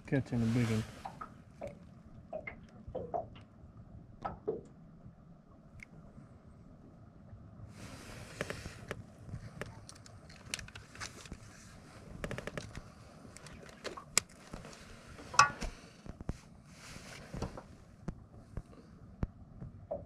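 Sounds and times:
handling clicks taps and rustles: 0:08.4 - 0:11.4.

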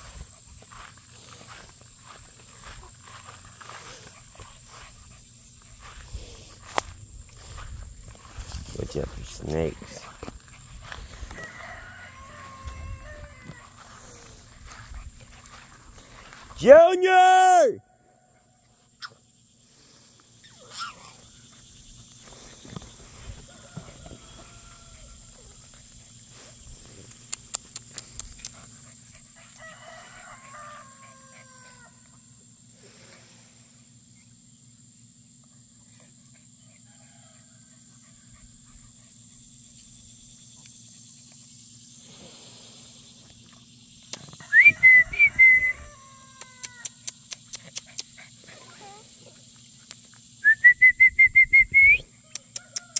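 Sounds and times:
chickens and turkeys calling: 0:10.3 - 0:16.4, 0:29.4 - 0:32.3
loud high-pitched rising call: 0:44.4 - 0:46.2.

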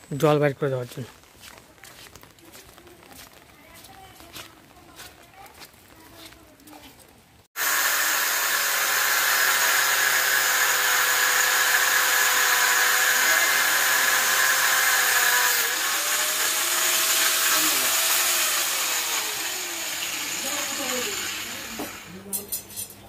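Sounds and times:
angle grinder cutting steel: 0:07.6 - 0:22.6.

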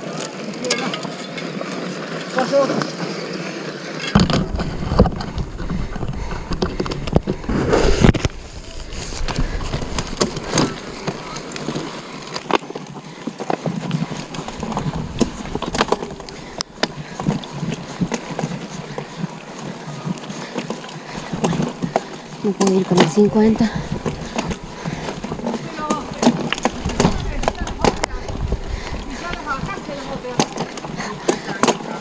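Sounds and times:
bike tyres on rough trail: 0:00.0 - 0:32.0
bike rattling and knocking: 0:04.0 - 0:07.5, 0:08.1 - 0:32.0
wind noise: 0:04.1 - 0:12.0, 0:13.9 - 0:19.2, 0:23.0 - 0:31.2
heavy low rumble: 0:04.2 - 0:11.3, 0:23.7 - 0:30.4.

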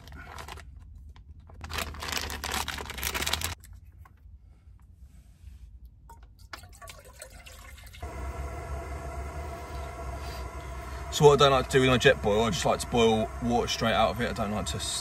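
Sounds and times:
plastic packet rustling and crinkling: 0:00.0 - 0:03.9.

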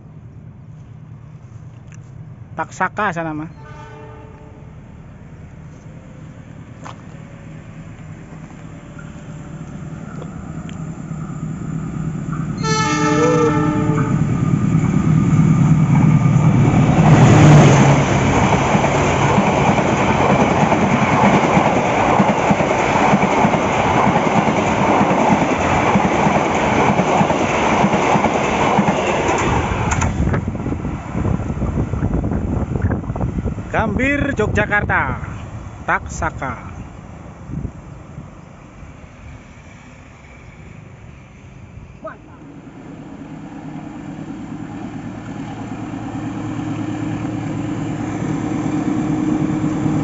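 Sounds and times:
diesel locomotive horn: 0:03.5 - 0:04.8, 0:12.6 - 0:14.3
locomotive engine passing: 0:04.4 - 0:50.0
train carriages rumbling on rails: 0:06.8 - 0:40.5.

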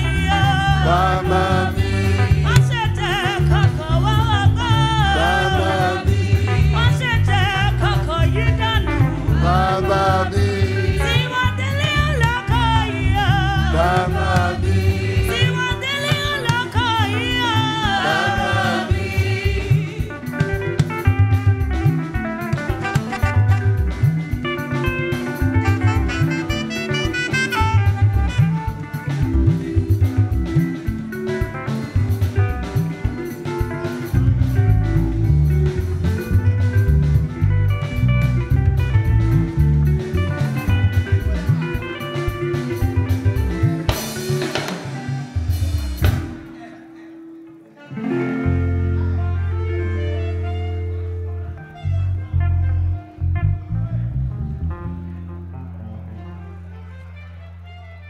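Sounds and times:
choir singing gospel song: 0:00.0 - 0:21.2
band with drums and bass: 0:00.0 - 0:58.0.

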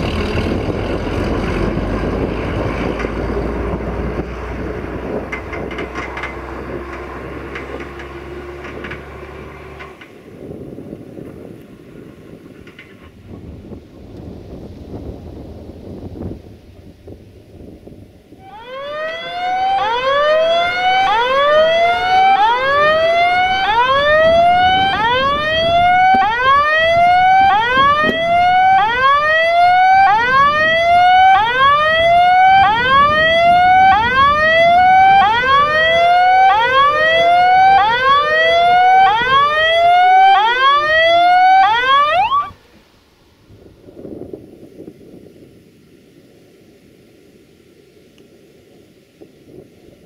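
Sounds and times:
level crossing alarm chirps: 0:18.4 - 0:42.6.

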